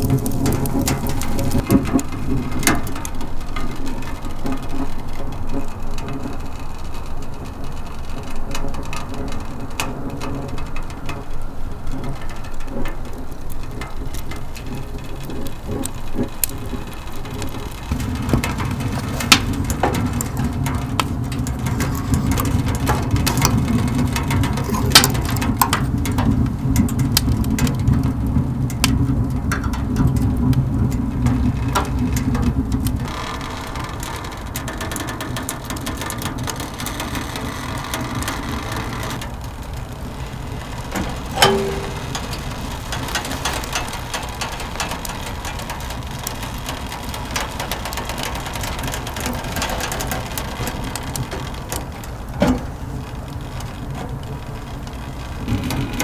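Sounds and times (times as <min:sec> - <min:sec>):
sharp snaps of fire: 0:00.0 - 0:49.4
wood fire crackling in stove: 0:00.0 - 0:56.0.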